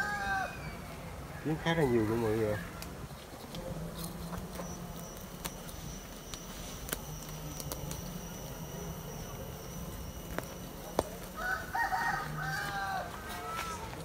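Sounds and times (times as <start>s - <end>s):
bees buzzing: 3.6s - 14.0s
high insect tones: 4.0s - 13.1s.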